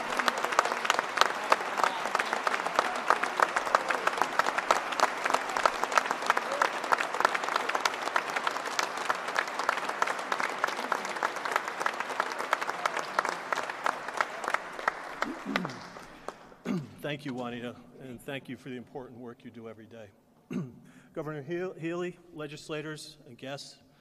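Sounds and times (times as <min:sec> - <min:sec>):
crowd applauding: 0:00.0 - 0:16.6.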